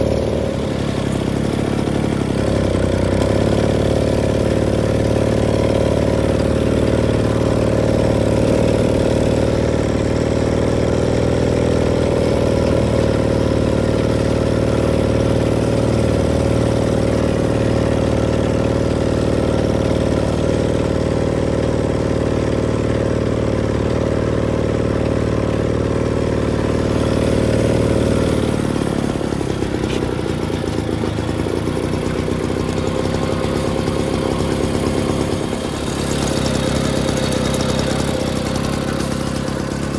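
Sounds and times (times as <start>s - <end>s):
moped engine running: 0.0s - 39.9s.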